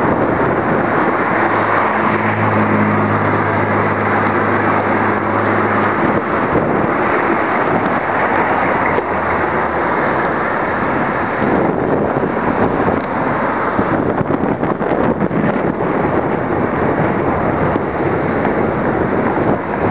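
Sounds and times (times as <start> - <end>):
road and traffic noise: 0.0 - 19.9
vehicle engine low hum: 0.0 - 19.9
wind buffeting microphone: 0.0 - 19.9.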